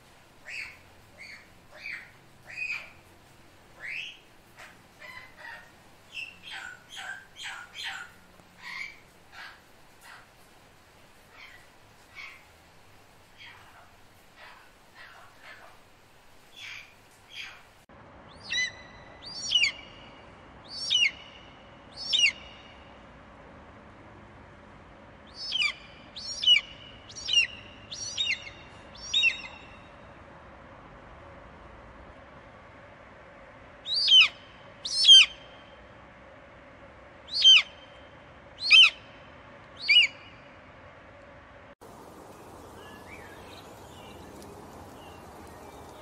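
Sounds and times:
eagle calling: 38.6s - 39.0s.

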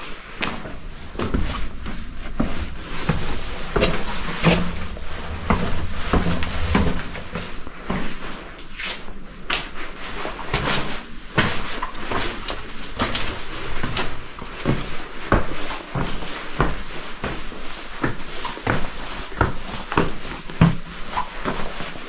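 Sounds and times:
footsteps on stone: 0.4s - 7.4s
low handling rumble: 0.4s - 8.6s.

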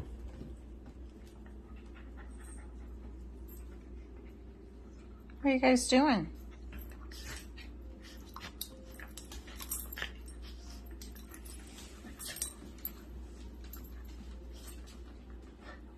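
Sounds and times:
soft dog noises: 0.0s - 5.4s
dogs scuffling on floor: 7.0s - 15.4s.

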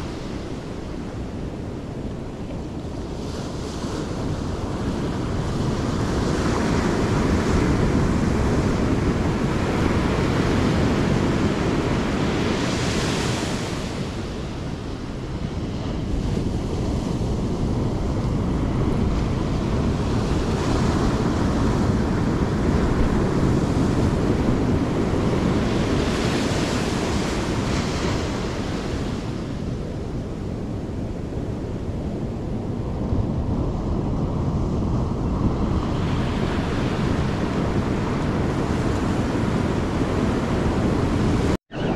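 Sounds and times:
wind buffeting microphone: 0.0s - 41.9s
surf breaking on beach: 3.0s - 30.0s.

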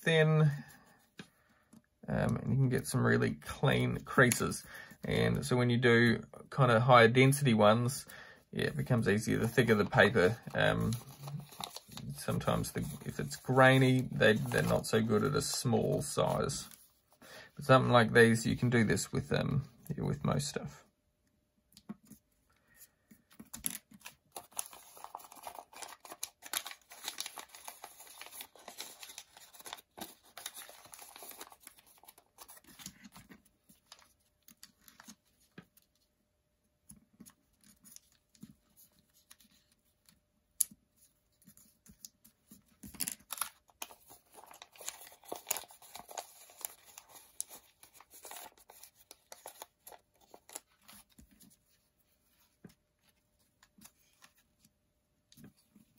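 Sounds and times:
paper rustling and crinkling: 8.7s - 17.2s, 21.9s - 36.2s, 36.8s - 55.9s.

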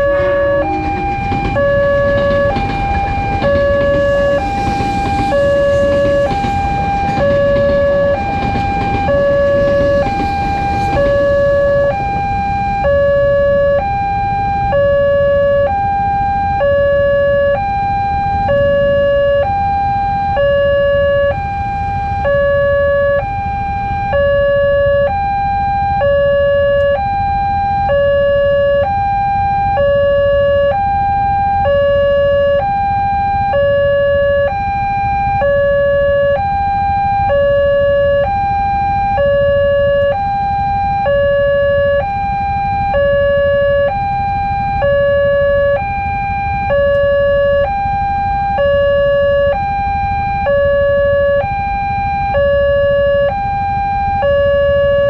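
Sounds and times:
motorbike engines idling: 0.0s - 13.4s
level crossing alarm hi-lo tones: 0.0s - 55.0s.

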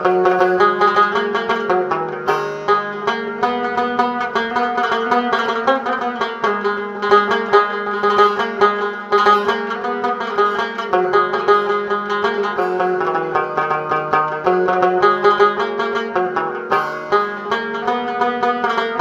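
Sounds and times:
fast plucked-string melody: 0.0s - 19.0s.

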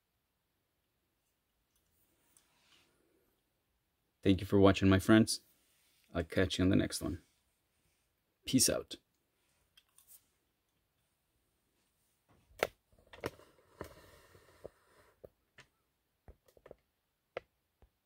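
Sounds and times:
toy car set on table: 12.6s - 15.4s.

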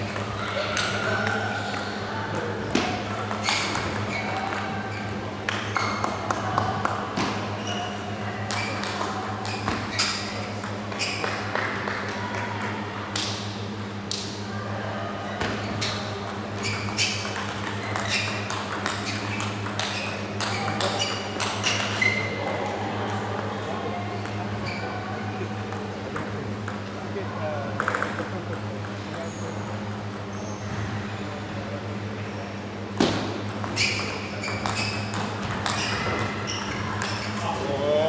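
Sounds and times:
table tennis ball clicking: 16.3s - 23.2s.

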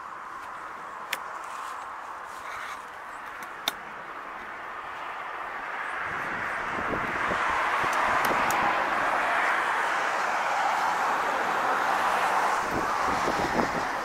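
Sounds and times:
distant road traffic hiss: 0.0s - 14.0s
vehicle approaching: 4.1s - 14.0s.

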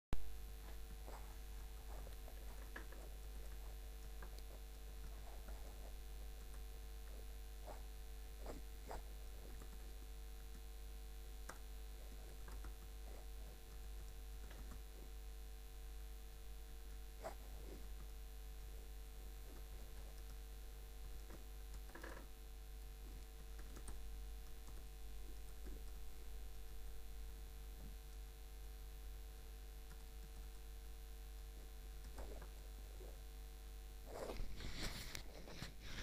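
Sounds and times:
electrical mains hum: 0.2s - 36.0s
keyboard keys typing: 11.4s - 13.0s, 13.7s - 14.9s, 23.1s - 26.0s.

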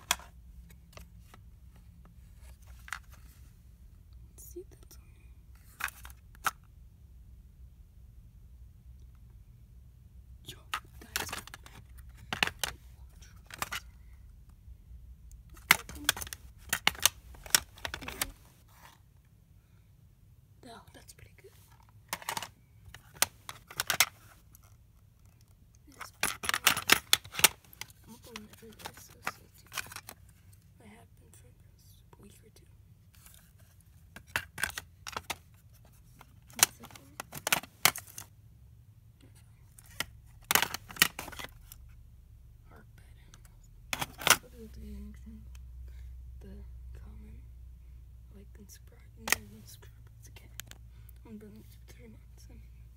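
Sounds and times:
plastic cassette cases clicking: 0.0s - 0.3s, 2.7s - 3.2s, 5.7s - 6.7s, 10.7s - 12.8s, 13.4s - 13.8s, 15.6s - 18.4s, 22.1s - 24.6s, 25.2s - 30.2s, 34.2s - 38.3s, 39.8s - 41.8s, 43.9s - 44.4s, 49.2s - 49.4s.

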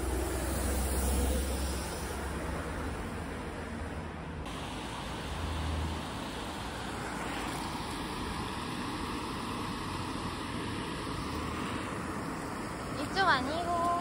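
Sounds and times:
even hiss: 4.5s - 14.0s.

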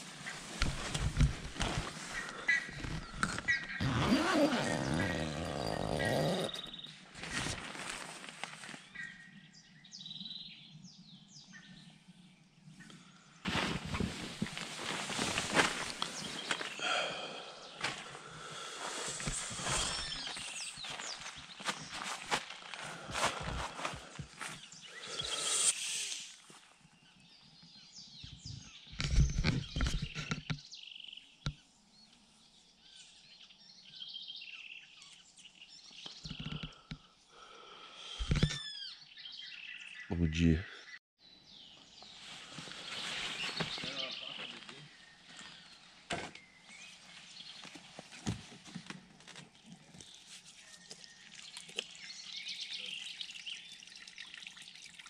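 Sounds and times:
small birds chirping: 0.0s - 55.0s
water trickling over hands: 50.1s - 55.0s.

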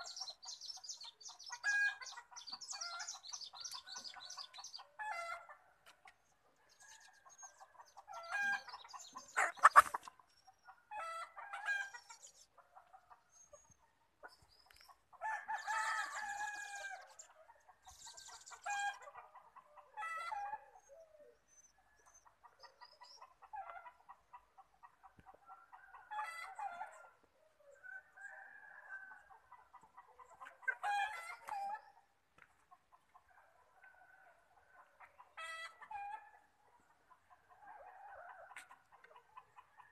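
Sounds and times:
chickens clucking: 0.0s - 21.4s, 22.0s - 39.9s.

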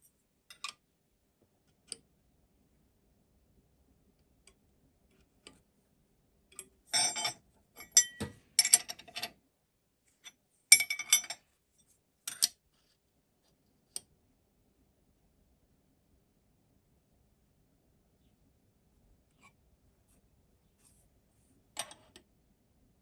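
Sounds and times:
steel tools clinking on metal clamp: 6.9s - 9.3s, 10.7s - 11.4s.

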